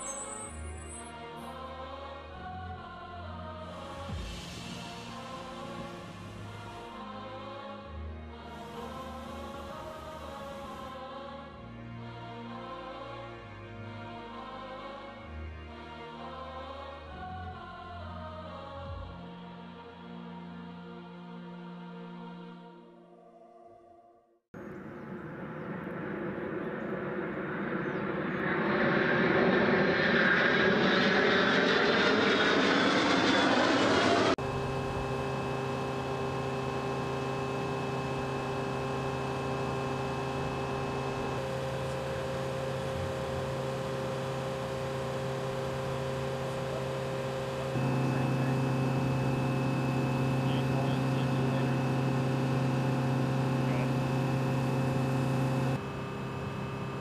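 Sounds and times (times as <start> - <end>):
jets flying overhead: 24.6 - 57.0
steady machine hum: 24.6 - 57.0.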